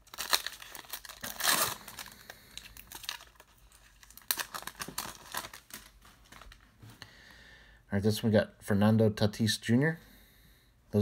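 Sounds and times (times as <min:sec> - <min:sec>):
foil wrapper tearing and crinkling: 0:00.0 - 0:06.6.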